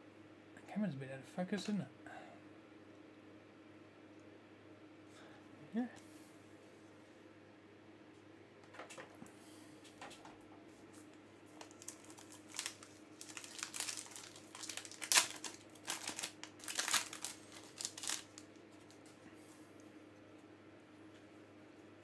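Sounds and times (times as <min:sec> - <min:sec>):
foil wrapper tearing and crinkling: 0:11.6 - 0:19.2.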